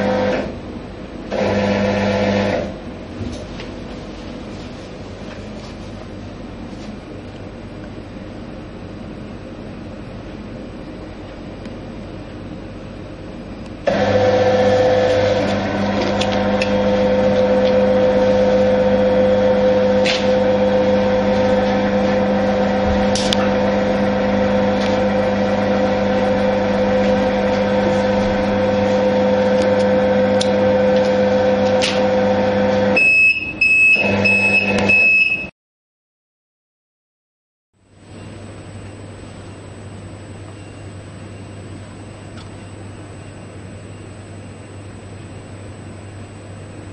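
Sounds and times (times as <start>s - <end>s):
conveyor belt motor humming: 0.0s - 35.0s.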